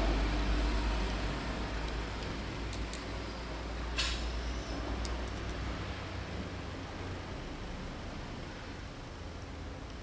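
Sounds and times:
faint clicks of small parts: 1.8s - 3.1s, 5.0s - 5.6s.

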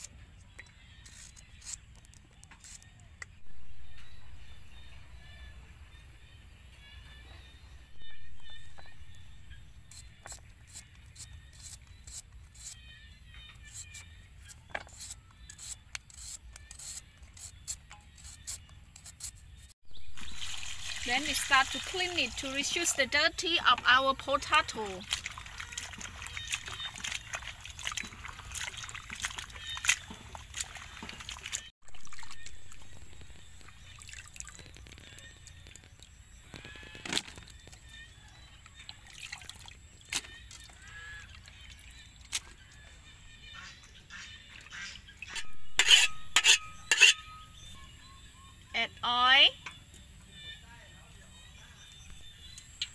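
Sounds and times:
water trickling and splashing: 20.0s - 36.2s, 38.6s - 42.8s
potato slicer scraping: 45.3s - 47.2s.

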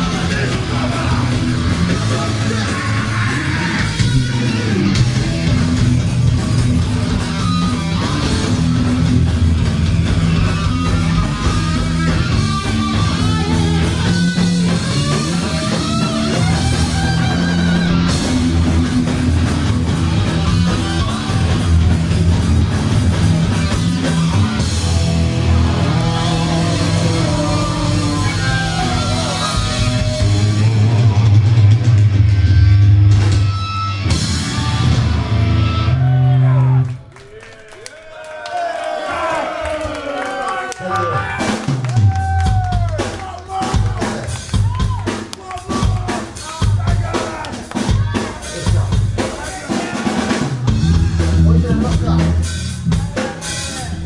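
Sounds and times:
drum kit: 0.0s - 36.8s, 41.2s - 54.0s
electric guitar: 0.0s - 37.0s, 47.8s - 54.0s.

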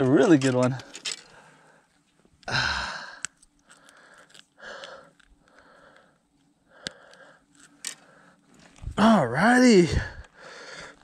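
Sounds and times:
person breathing out hard: 2.5s - 8.4s, 9.9s - 11.0s.

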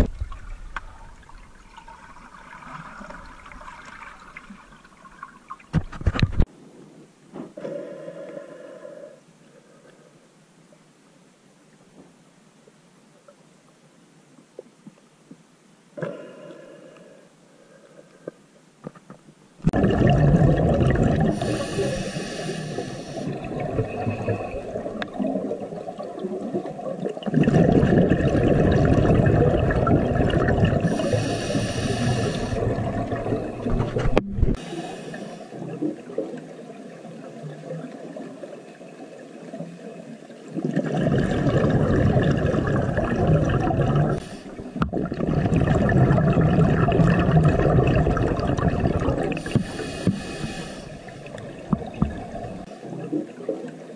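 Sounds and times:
gurgling exhaled bubbles: 19.6s - 34.7s, 40.5s - 53.9s.

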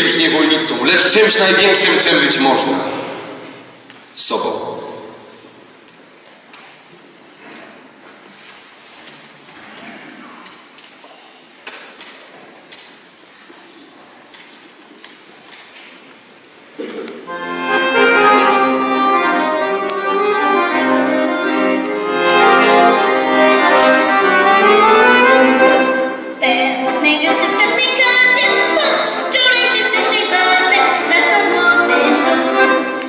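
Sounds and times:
accordion playing slow chords: 17.3s - 33.0s.

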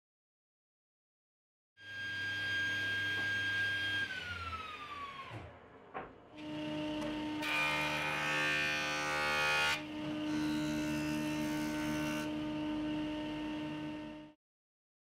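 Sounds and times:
jointer planing wood: 1.9s - 14.3s.

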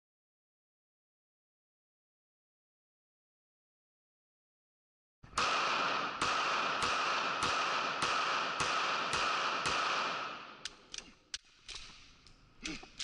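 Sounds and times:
pistol shots: 5.3s - 11.0s
pistol handling clicks: 10.6s - 12.4s.

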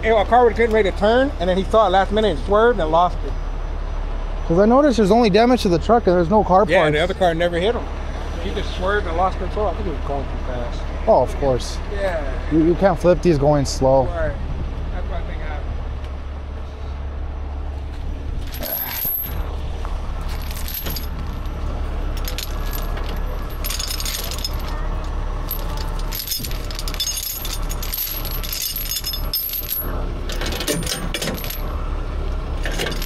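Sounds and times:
steady low rumble: 4.2s - 33.0s
steel chain clinking: 18.4s - 19.5s, 20.2s - 31.7s, 32.6s - 33.0s.

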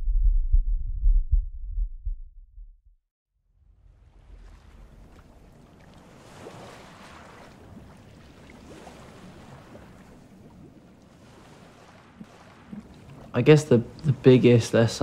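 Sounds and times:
sea waves washing onto beach: 3.9s - 15.0s.

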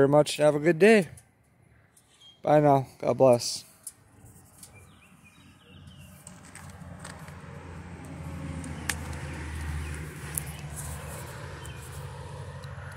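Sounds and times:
vehicle engine humming: 3.7s - 12.9s.

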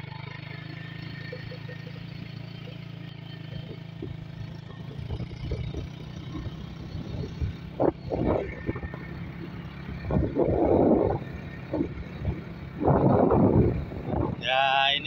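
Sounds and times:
motorcycle engine running: 0.0s - 15.0s
wind buffeting microphone: 3.7s - 14.5s.

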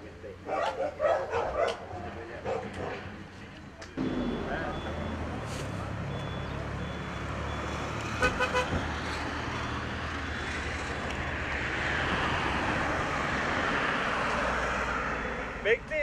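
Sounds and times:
short beeps: 4.0s - 5.5s, 6.1s - 7.8s
passing vehicle tyres hissing: 4.0s - 15.7s.

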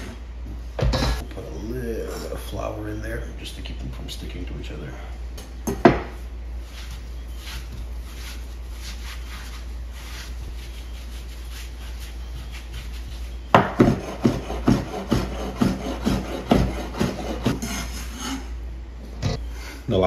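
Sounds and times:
hands rolling dough on board: 5.8s - 17.7s.

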